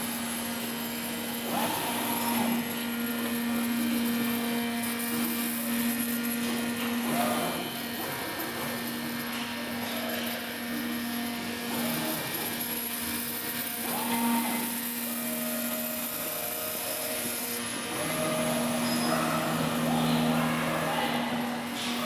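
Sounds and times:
cutting machine motor hum: 0.0s - 22.0s.

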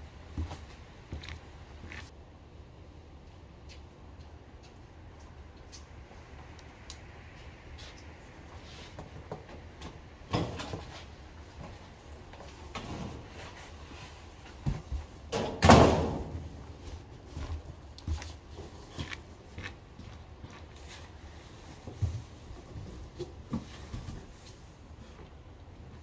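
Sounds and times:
footsteps: 0.0s - 2.1s, 3.6s - 15.3s, 16.2s - 26.0s
metal screen door clunk and rattle: 9.8s - 10.9s, 15.3s - 16.5s.

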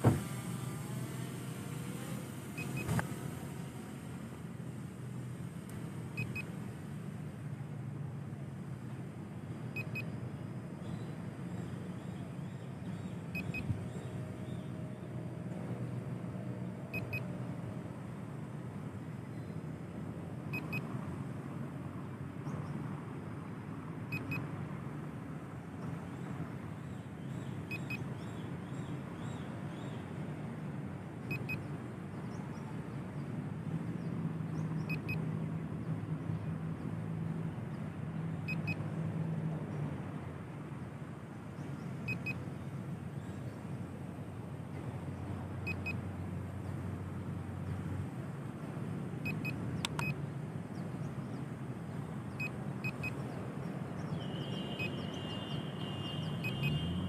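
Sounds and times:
low rumble of road traffic: 0.0s - 57.0s
passing vehicle engine hum: 0.0s - 57.0s
short double beep: 56.0s - 56.8s.

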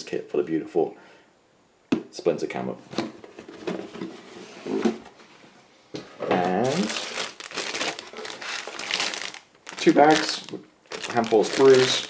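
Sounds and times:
plastic bag crinkling: 6.6s - 12.0s.

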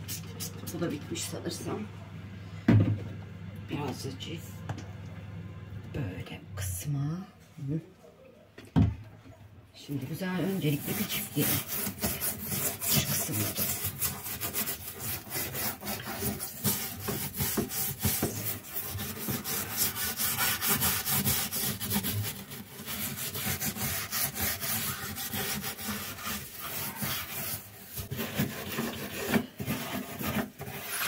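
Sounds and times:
metal scouring pad scrubbing: 10.1s - 31.0s.

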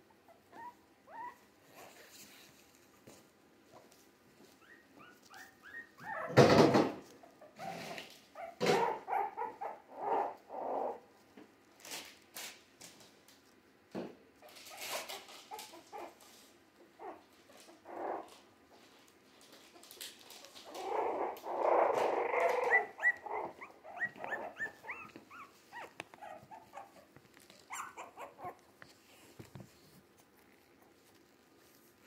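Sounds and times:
puppies growling and scuffling: 0.2s - 13.7s, 14.3s - 32.0s
puppies squeaking and yipping: 0.3s - 1.9s, 4.5s - 6.6s, 7.2s - 11.0s, 14.4s - 16.2s, 20.5s - 28.6s
puppies whimpering: 4.6s - 6.5s, 20.7s - 28.6s.

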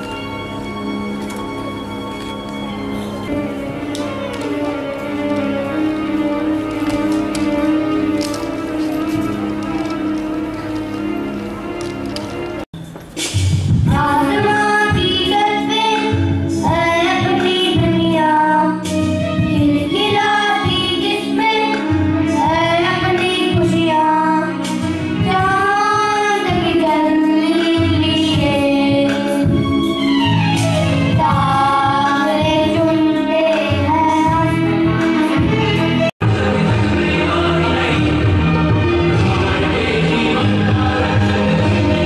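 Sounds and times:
instrumental accompaniment: 0.0s - 42.0s
boys singing together: 36.2s - 42.0s.

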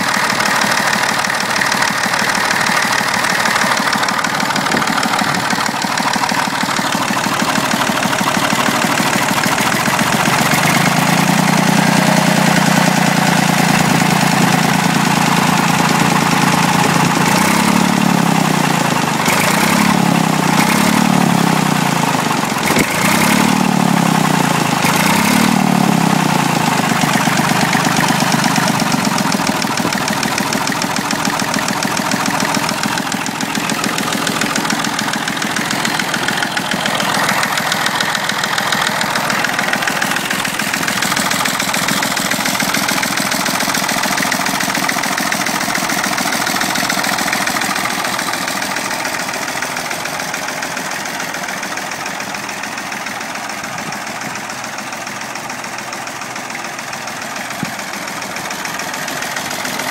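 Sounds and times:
tractor engine idling: 0.0s - 59.9s.

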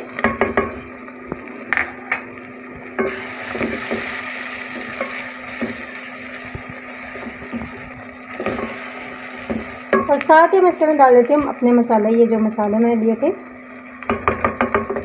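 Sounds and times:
oil sizzling: 0.0s - 15.0s
wooden spoon knocking on pot: 0.2s - 0.8s, 9.4s - 10.1s, 14.0s - 15.0s.

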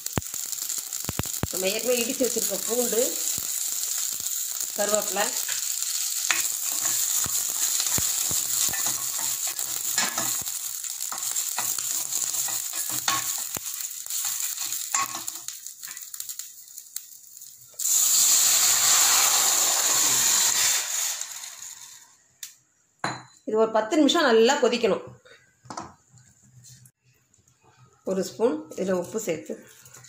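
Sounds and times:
seeds sizzling in hot oil: 0.0s - 22.3s, 28.6s - 30.0s
spatula scraping pan: 5.3s - 10.5s, 11.1s - 16.0s
loud hiss of liquid poured in: 17.8s - 22.1s.

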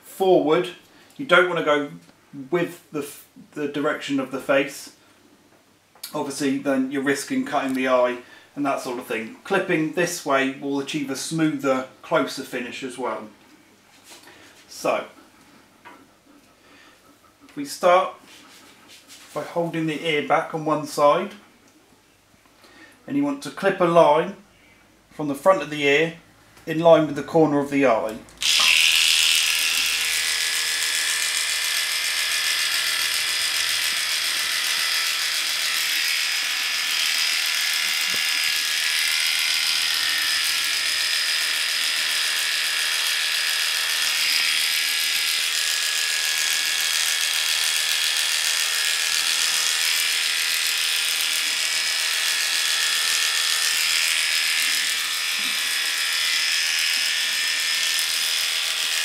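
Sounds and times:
electric clippers running: 28.3s - 59.0s.

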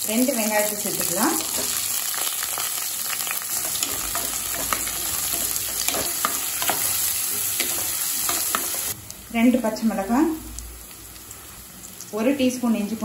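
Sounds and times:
onions sizzling in hot oil: 0.0s - 13.0s
spatula scraping a pan: 3.2s - 9.0s.

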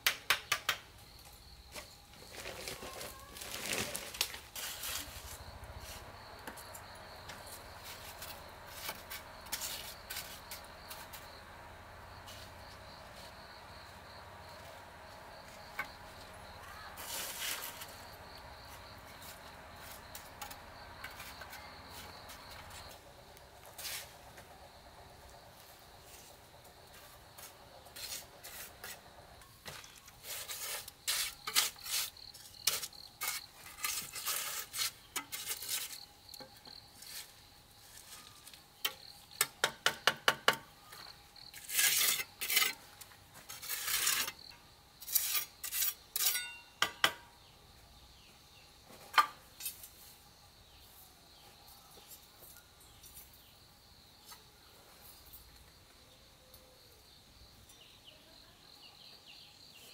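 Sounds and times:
scraping on hard surface: 1.8s - 11.4s, 15.4s - 23.0s, 23.6s - 24.2s, 26.0s - 38.5s, 41.4s - 46.6s.

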